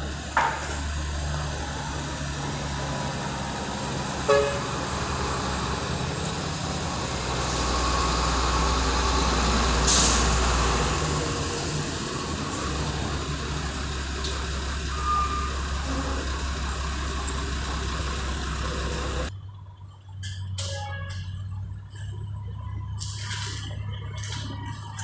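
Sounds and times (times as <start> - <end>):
dump truck engine: 0.0 - 25.0
heavy machinery rumble: 0.0 - 25.0
air brake hiss: 9.8 - 10.5.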